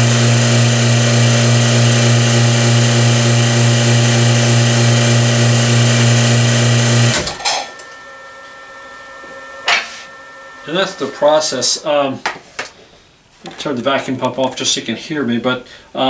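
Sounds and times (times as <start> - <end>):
vacuum pump humming: 0.0 - 11.9.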